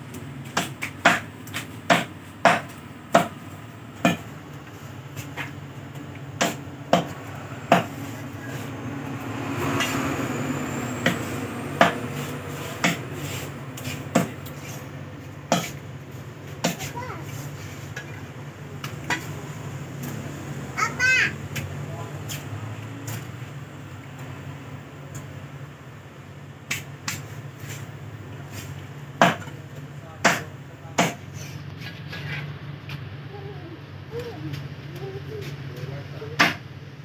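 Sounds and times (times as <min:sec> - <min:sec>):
cleaver chopping on wooden block: 0:00.6 - 0:01.3, 0:01.9 - 0:03.4, 0:04.0 - 0:04.2, 0:06.4 - 0:08.0, 0:29.2 - 0:29.5, 0:30.2 - 0:31.2.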